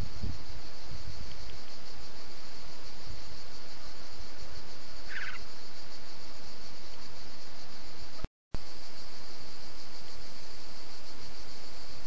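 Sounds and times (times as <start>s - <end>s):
rattling bird call: 5.1s - 5.4s.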